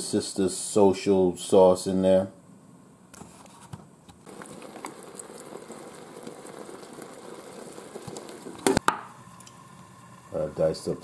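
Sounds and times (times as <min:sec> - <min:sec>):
steak sizzling in pot: 0:04.2 - 0:11.0.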